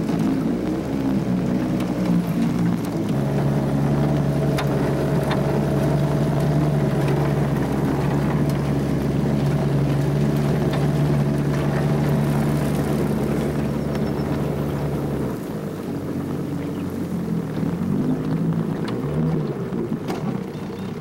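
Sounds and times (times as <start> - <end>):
outboard motor running: 0.0 - 21.0.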